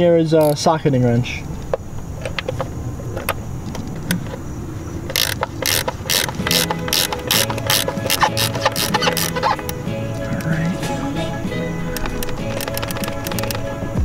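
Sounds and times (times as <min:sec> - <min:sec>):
ratchet wrench clicking: 0:00.4 - 0:00.7, 0:05.1 - 0:09.8, 0:11.9 - 0:13.7.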